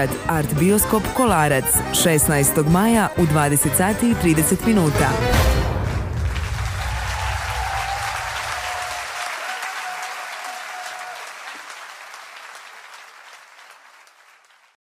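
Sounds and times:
large audience applauding: 0:05.8 - 0:14.8.

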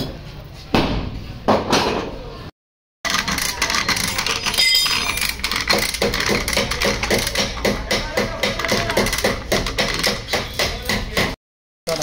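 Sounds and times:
metal chain clanking: 0:03.1 - 0:05.9.

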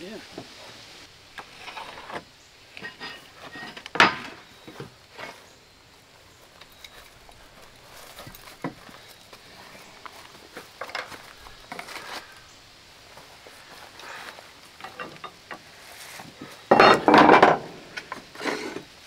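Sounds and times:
light footsteps: 0:04.6 - 0:16.6.

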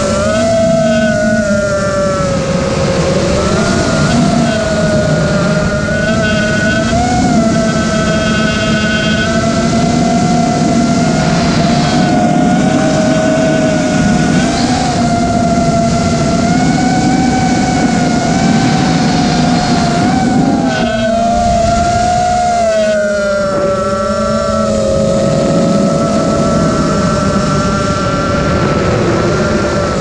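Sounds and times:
quadcopter motors whining: 0:00.0 - 0:30.0
rushing prop wash and wind: 0:00.0 - 0:30.0.

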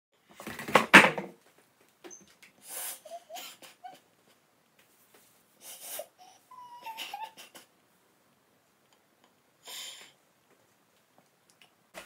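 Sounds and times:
woman whimpering: 0:06.0 - 0:07.6
woman sobbing: 0:06.0 - 0:07.7.

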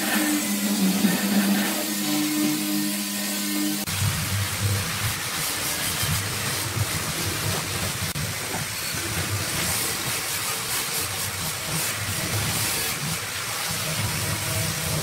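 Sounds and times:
mortising machine cutting wood: 0:00.0 - 0:03.9.

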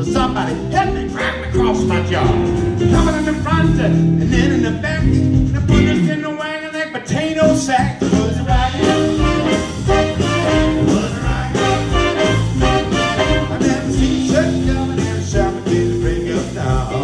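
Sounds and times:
electric guitars: 0:00.0 - 0:06.2, 0:07.4 - 0:17.0
bass: 0:00.0 - 0:17.0
drums: 0:00.0 - 0:17.0
piano: 0:00.0 - 0:17.0
horn section: 0:08.5 - 0:17.0.

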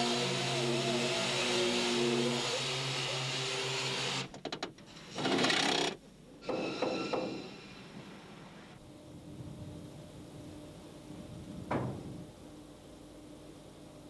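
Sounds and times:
machine running with wavering whine: 0:00.0 - 0:03.5.

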